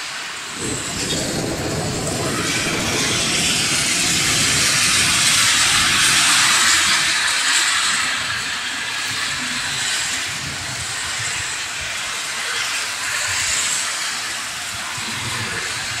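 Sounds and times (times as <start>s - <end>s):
car tyres on wet road: 0.0s - 16.0s
rain hiss: 0.0s - 16.0s
low traffic rumble: 0.4s - 11.8s.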